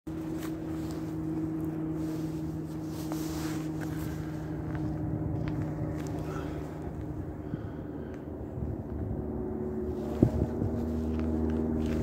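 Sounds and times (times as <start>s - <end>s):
low mechanical hum: 0.1s - 12.0s
low rumble: 0.1s - 12.0s.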